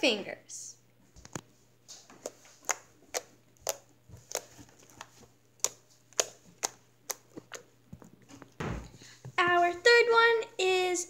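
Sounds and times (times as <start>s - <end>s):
slime popping and clicking: 2.2s - 7.7s.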